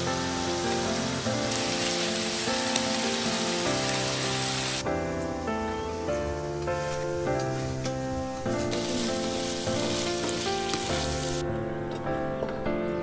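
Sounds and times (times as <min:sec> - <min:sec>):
food sizzling in oil: 0:00.0 - 0:04.9, 0:06.0 - 0:11.4
instrumental background music: 0:00.0 - 0:13.0.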